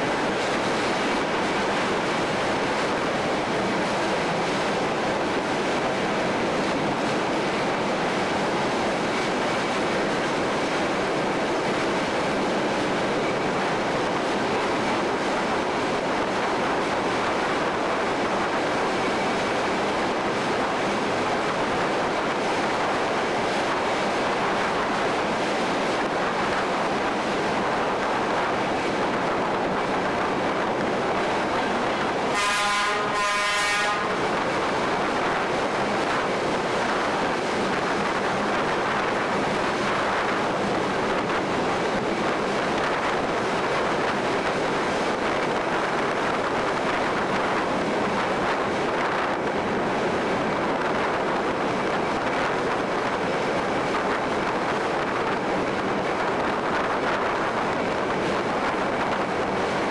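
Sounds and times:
train rushing: 0.0s - 59.9s
train horn blasts: 32.3s - 34.2s.

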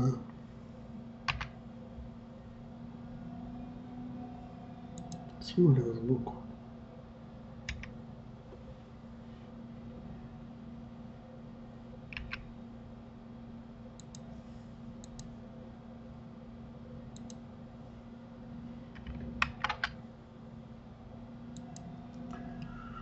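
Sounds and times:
steady low hum: 0.0s - 23.0s
computer mouse clicks: 1.3s - 1.6s, 4.9s - 5.3s, 7.7s - 8.0s, 12.1s - 12.5s, 14.0s - 14.3s, 15.0s - 15.3s, 17.1s - 17.4s, 21.5s - 22.7s
keyboard keystrokes: 1.3s - 1.6s, 7.7s - 7.9s, 12.1s - 12.4s.

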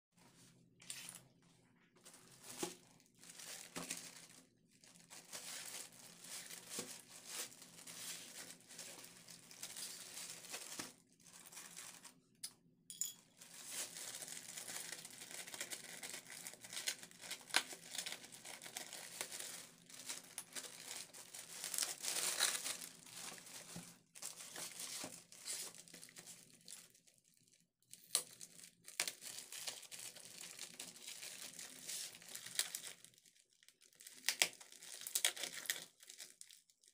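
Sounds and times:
plastic mailer bag crinkling: 2.0s - 12.2s, 13.4s - 27.0s, 28.2s - 36.6s
packing tape tearing: 14.0s - 23.4s.

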